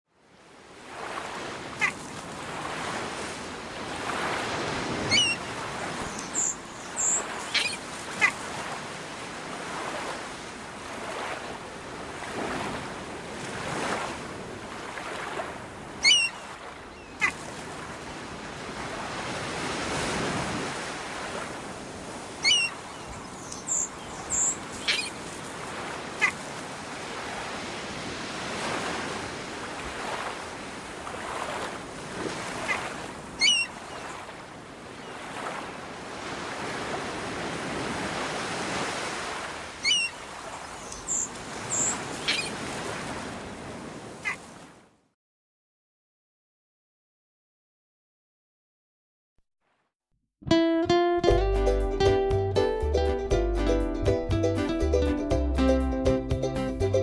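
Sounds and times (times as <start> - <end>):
ocean surf washing: 0.3 - 44.8
high bird chirps: 5.1 - 5.4, 6.1 - 7.8, 16.0 - 17.3, 22.4 - 25.2, 33.4 - 33.7, 39.8 - 40.2, 40.8 - 42.6.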